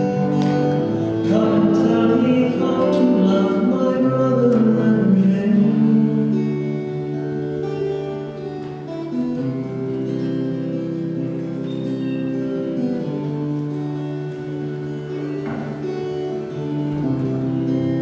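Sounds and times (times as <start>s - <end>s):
person singing a hymn: 0.0s - 7.4s
acoustic guitar: 0.0s - 18.0s.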